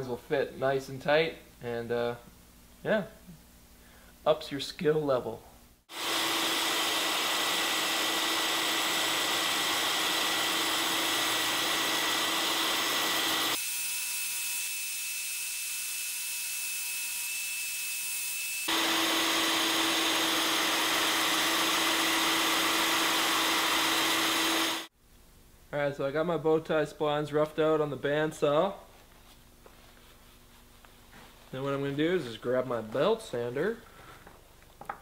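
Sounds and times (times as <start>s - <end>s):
bandsaw humming: 5.9s - 24.9s.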